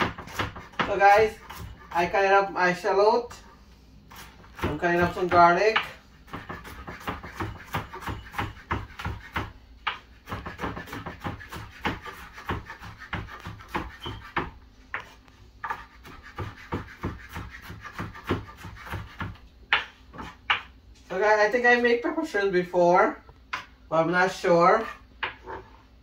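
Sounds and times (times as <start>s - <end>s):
knife chopping on wooden board: 0.0s - 2.1s, 4.1s - 20.7s.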